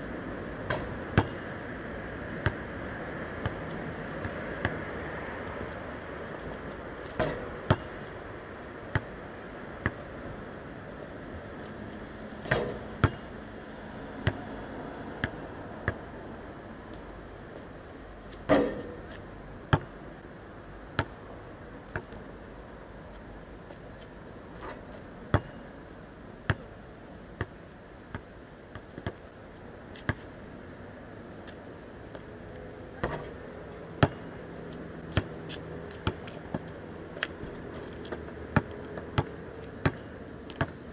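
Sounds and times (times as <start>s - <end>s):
basketball bouncing on asphalt: 0.6s - 1.5s, 2.4s - 2.7s, 3.4s - 4.8s, 7.1s - 8.1s, 8.8s - 9.2s, 9.8s - 10.1s, 12.4s - 13.3s, 14.2s - 14.5s, 15.2s - 16.0s, 18.4s - 20.0s, 21.0s - 21.2s, 25.3s - 25.6s, 28.1s - 29.2s, 30.0s - 30.3s, 33.0s - 33.3s, 34.0s - 34.4s, 35.0s - 40.8s.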